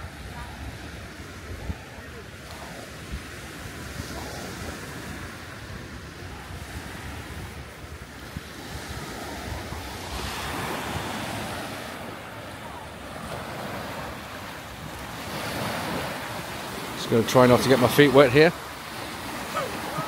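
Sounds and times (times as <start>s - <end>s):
waves breaking on shore: 0.0s - 20.0s
wind buffeting microphone: 0.0s - 20.0s.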